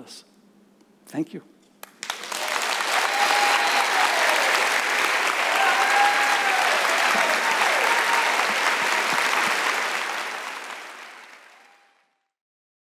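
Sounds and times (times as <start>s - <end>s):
audience applauding: 1.8s - 12.2s.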